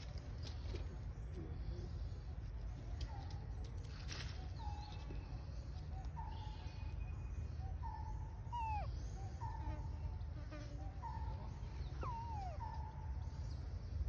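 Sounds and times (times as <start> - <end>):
whistled animal calls: 7.9 - 9.4.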